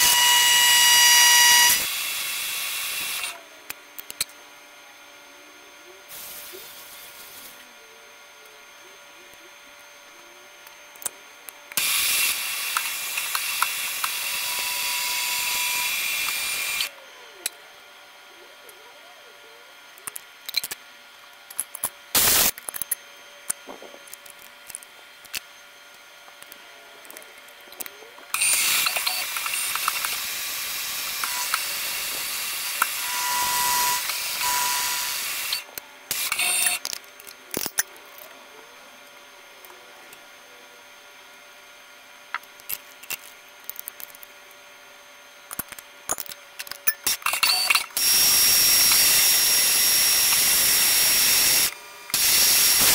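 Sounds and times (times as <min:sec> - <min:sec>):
metal tooling clicks and clanks: 0:21.5 - 0:25.5, 0:26.3 - 0:30.3, 0:35.4 - 0:38.2, 0:45.5 - 0:48.1.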